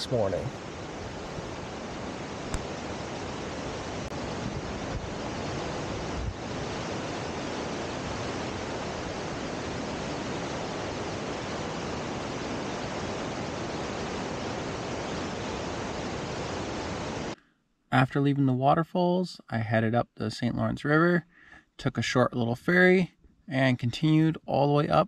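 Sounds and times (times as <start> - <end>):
waterfall rushing: 0.0 - 17.4.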